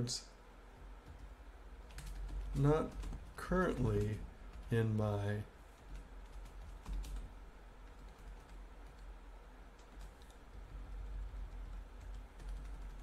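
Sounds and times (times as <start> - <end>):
computer keyboard keystrokes: 1.9 - 4.7, 5.8 - 7.3, 9.8 - 13.0.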